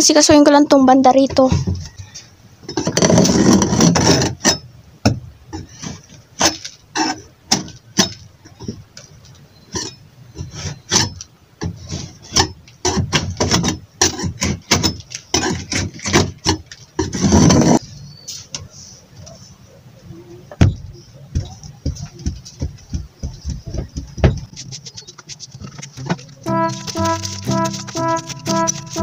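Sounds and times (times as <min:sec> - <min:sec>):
metal tool scraping wood: 0:02.6 - 0:04.7, 0:05.5 - 0:08.8, 0:09.6 - 0:17.8, 0:24.2 - 0:29.0
wooden clicks and knocks: 0:20.6 - 0:26.4.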